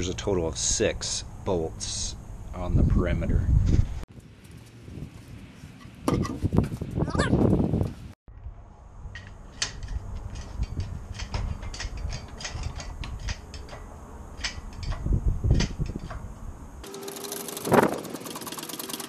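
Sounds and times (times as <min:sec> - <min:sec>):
chain hoist ratcheting clicks: 0:09.2 - 0:16.2, 0:16.8 - 0:19.0.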